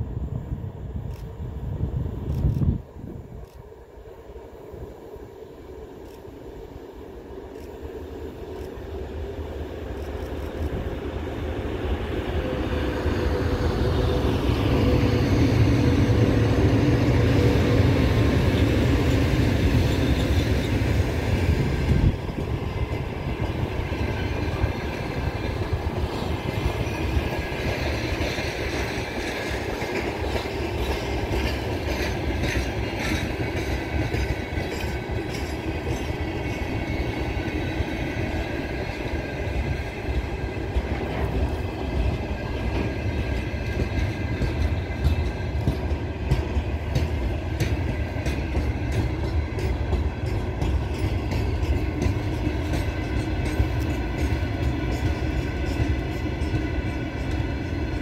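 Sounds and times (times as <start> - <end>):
diesel locomotive engines running: 0.0 - 58.0
train wheels clicking over rail joints: 12.1 - 58.0.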